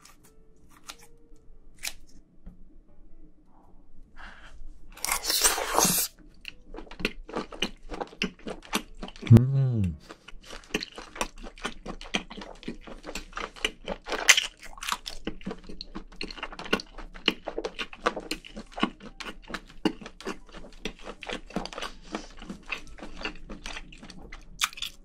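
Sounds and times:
close-miked chewing: 0:05.0 - 0:25.0.

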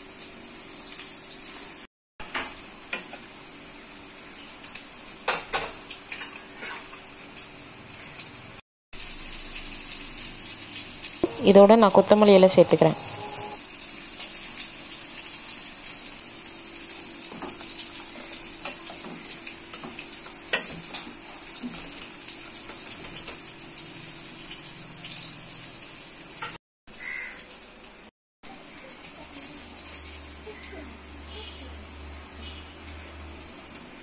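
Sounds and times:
curry simmering hiss: 0:09.0 - 0:26.2, 0:27.0 - 0:34.0.

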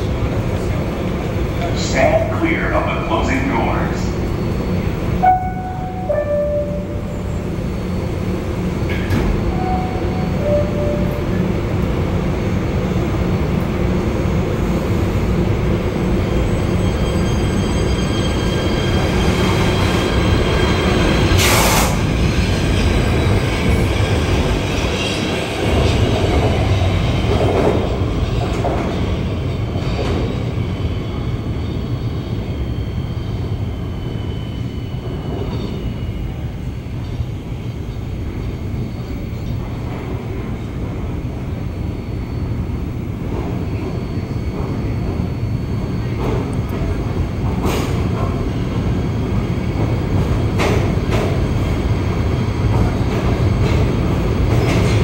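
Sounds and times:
train rumbling: 0:00.0 - 0:55.0
descending two-tone door chime: 0:05.2 - 0:07.4, 0:09.5 - 0:11.5.

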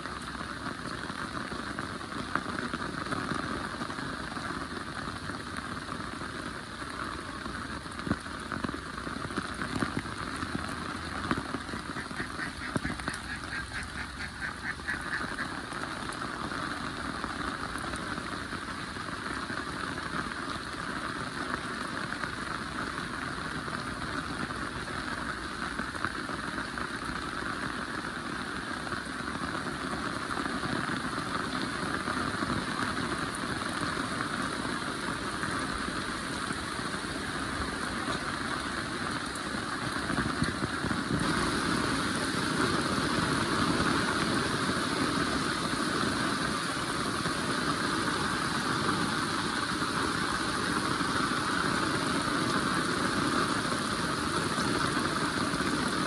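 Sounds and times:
heavy rain: 0:00.0 - 0:56.0
drops ticking: 0:09.8 - 0:15.6
rapid pulsing calls: 0:11.7 - 0:15.8.

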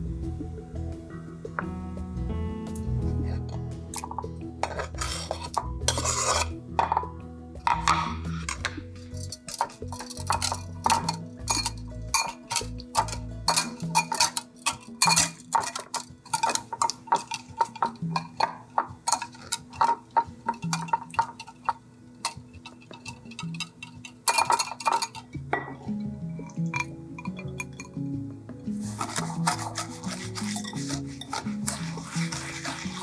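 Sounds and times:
whisk scraping a glass bowl: 0:04.0 - 0:06.6, 0:08.4 - 0:25.2, 0:28.7 - 0:33.0.

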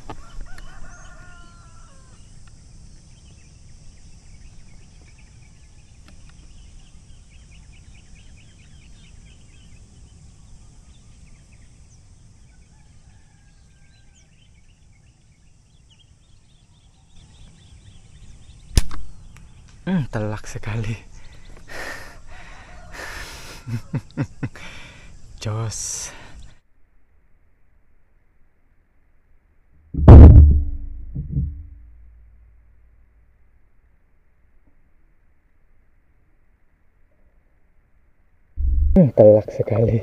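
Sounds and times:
faint bird calls: 0:00.0 - 0:02.7, 0:21.0 - 0:25.1
bird chirps: 0:02.9 - 0:12.8
air rifle shot: 0:18.8 - 0:19.2, 0:30.0 - 0:31.7.

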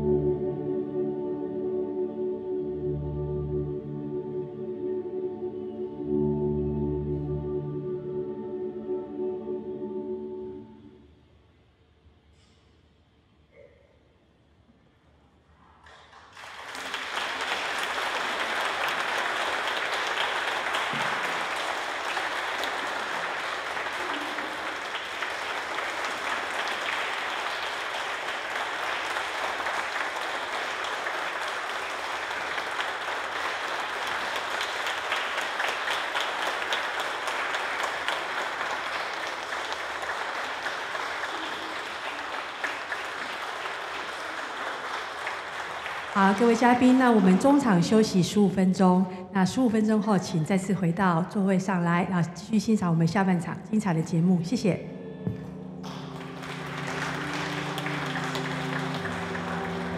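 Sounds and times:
audience applauding: 0:15.8 - 0:48.3, 0:55.8 - 0:59.9.

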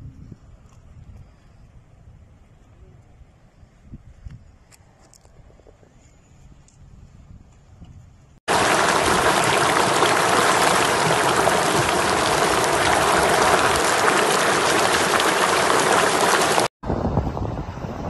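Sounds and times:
flood water rushing: 0:08.5 - 0:16.7.

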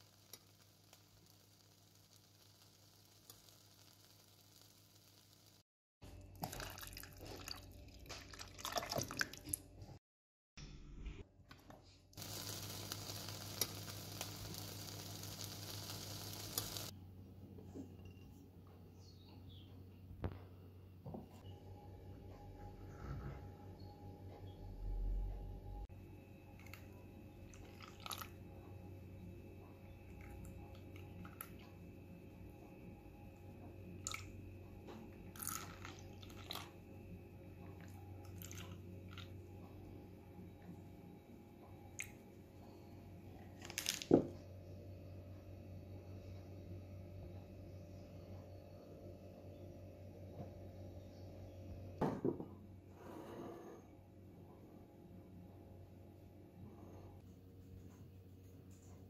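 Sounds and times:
jelly dripping and splashing: 0:06.4 - 0:09.6
low steady hum: 0:10.6 - 0:53.0
liquid hissing in a pot: 0:12.2 - 0:16.9.

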